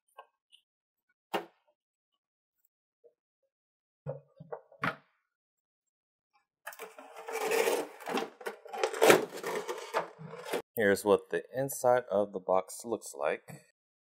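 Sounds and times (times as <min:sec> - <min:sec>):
plastic tray scraping out of box: 0:06.7 - 0:10.6.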